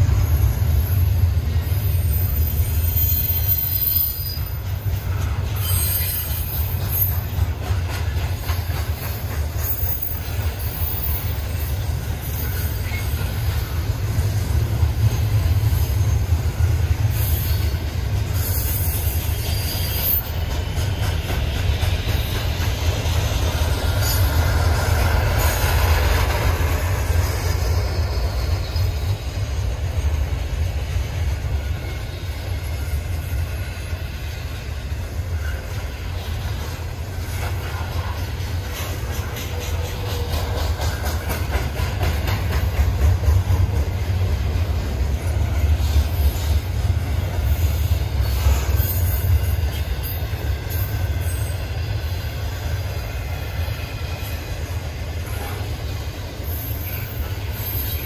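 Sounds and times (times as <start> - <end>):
train wheels rumbling on rails: 0.0 - 58.0
high-pitched wheel squeals: 0.2 - 4.6, 5.6 - 7.3, 17.0 - 20.4, 48.2 - 52.5.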